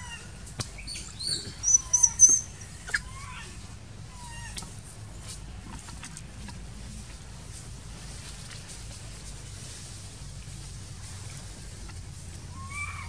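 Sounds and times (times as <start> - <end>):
baby monkey squeaking: 0.8 - 3.4.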